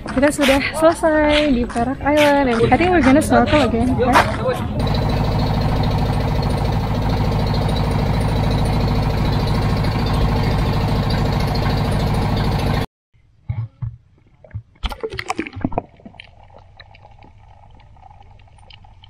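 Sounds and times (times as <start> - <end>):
boat engine running: 2.2 - 12.9.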